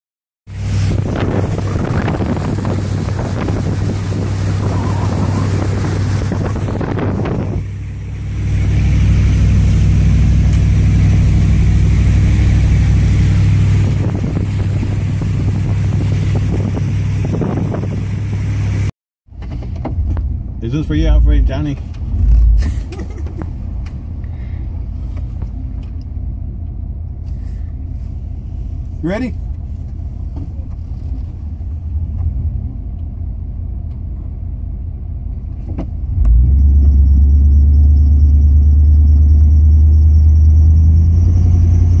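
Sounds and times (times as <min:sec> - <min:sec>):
water rushing and splashing: 0:00.5 - 0:18.8
vehicle engine humming: 0:00.5 - 0:42.0.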